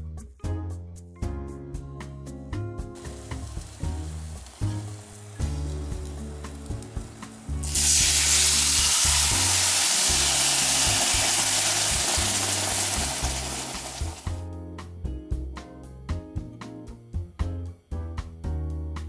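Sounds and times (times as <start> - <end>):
sauce sizzling in a frying pan: 3.0 - 14.4.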